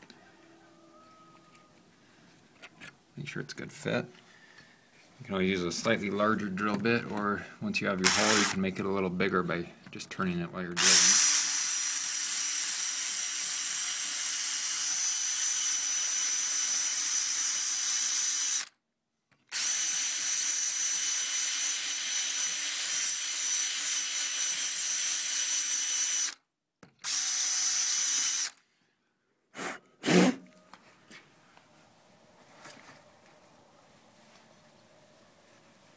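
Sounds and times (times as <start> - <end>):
power drill grinding into stone: 8.0 - 8.6, 10.8 - 18.8, 19.5 - 26.4, 27.0 - 28.6.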